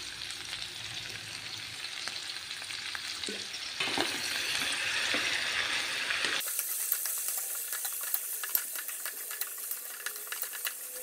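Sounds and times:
meat sizzling in a hot pan: 0.0 - 11.0
utensil clicking against pan: 6.4 - 11.0.

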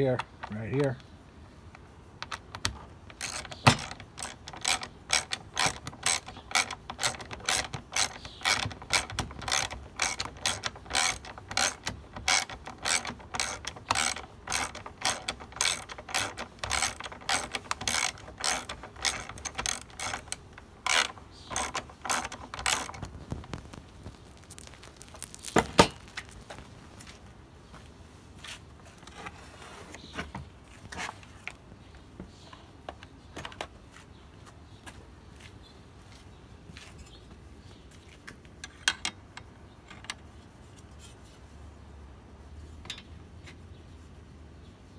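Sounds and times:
ratchet wrench clicking: 3.1 - 23.0.

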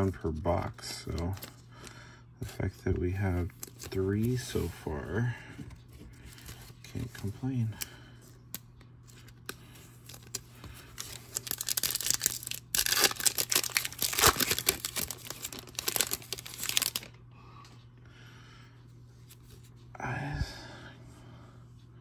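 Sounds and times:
foil wrapper tearing and crinkling: 9.5 - 17.2.

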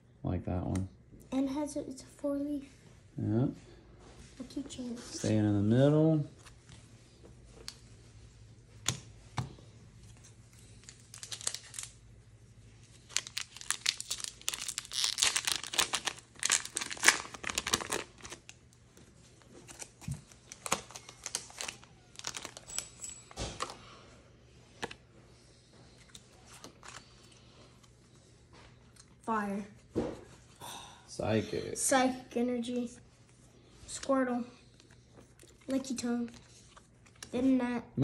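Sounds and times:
foil wrapper crinkling and tearing: 10.8 - 12.0, 12.9 - 18.6, 19.6 - 23.0.

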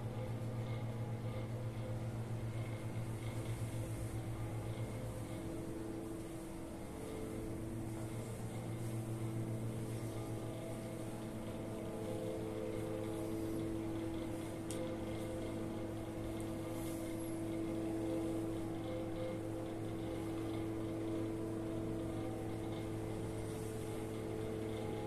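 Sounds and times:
machine hum: 0.0 - 25.0
faint tick: 14.6 - 14.9.

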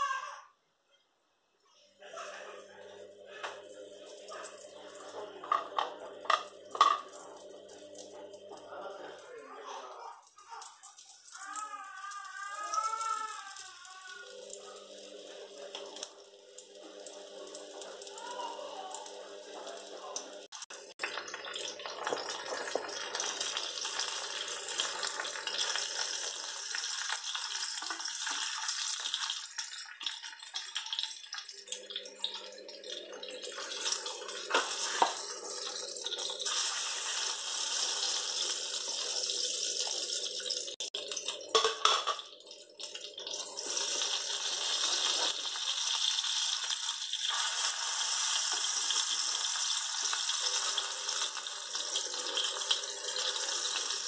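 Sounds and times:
fish sizzling in hot oil: 10.8 - 32.5, 33.4 - 42.0, 42.7 - 54.0.

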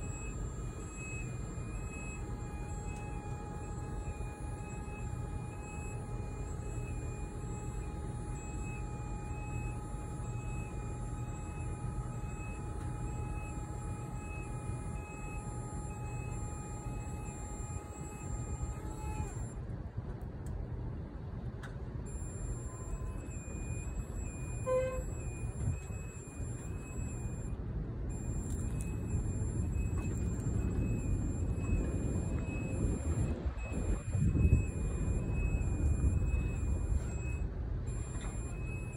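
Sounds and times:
high repeating alarm beep: 0.0 - 19.6, 22.1 - 38.9
hydraulic pump motor humming: 0.0 - 19.6.

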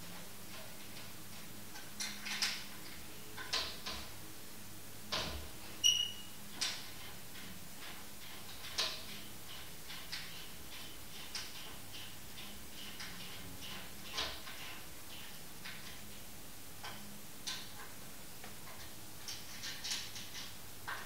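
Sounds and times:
brief high squeak: 5.8 - 6.3.

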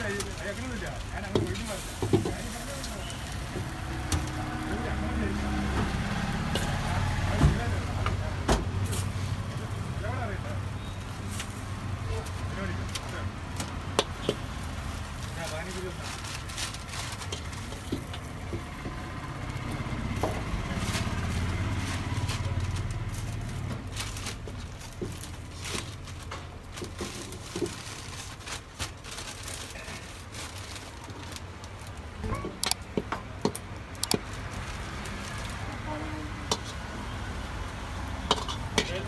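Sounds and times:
metal ladle scraping in wok: 38.3 - 39.0.

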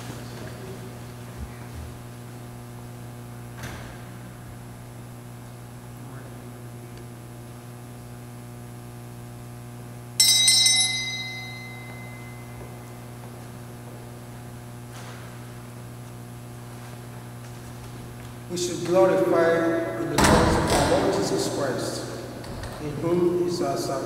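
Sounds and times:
electrical hum: 0.0 - 24.0
small bell ringing: 10.2 - 12.7.

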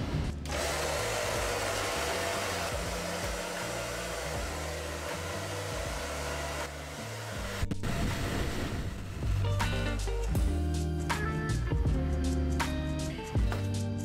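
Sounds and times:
hair dryer blowing: 0.4 - 9.6.

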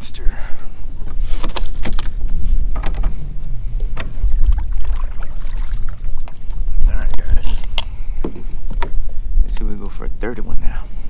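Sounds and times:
water rumbling against kayak hull: 0.9 - 9.5.

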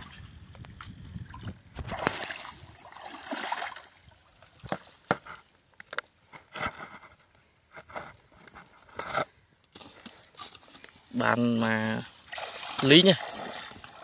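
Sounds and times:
muddy water splashing: 0.0 - 5.3, 9.7 - 14.0.

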